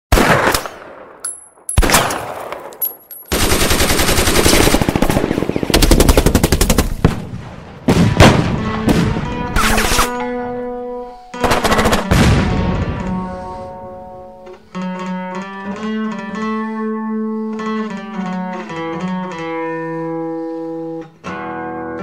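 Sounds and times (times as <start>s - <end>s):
rapid automatic gunfire: 3.3s - 7.2s, 11.4s - 12.3s
explosions: 4.9s - 10.0s, 11.6s - 13.6s.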